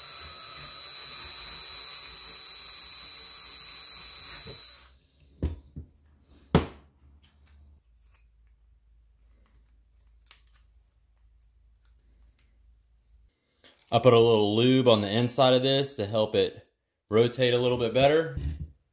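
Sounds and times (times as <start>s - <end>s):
cordless drill drilling metal: 0.0s - 5.0s.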